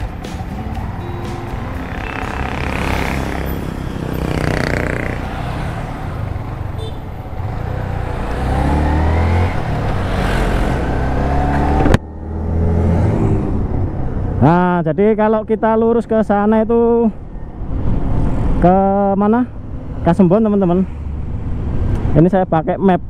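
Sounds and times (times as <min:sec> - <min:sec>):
wind and road noise: 0:00.0 - 0:23.0
motorcycle engine accelerating: 0:01.6 - 0:13.9.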